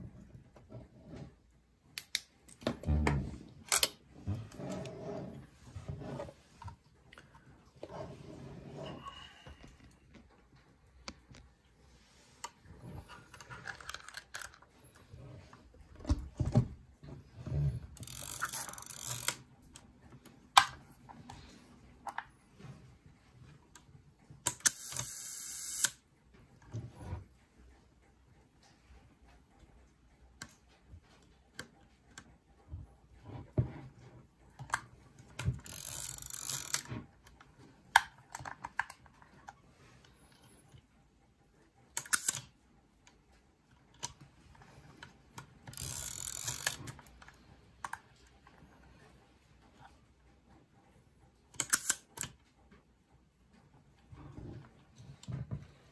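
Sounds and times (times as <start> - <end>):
camera ratcheting: 18.0 - 19.4, 35.6 - 36.9, 45.7 - 47.1
camera mechanical clicks: 24.5 - 26.0.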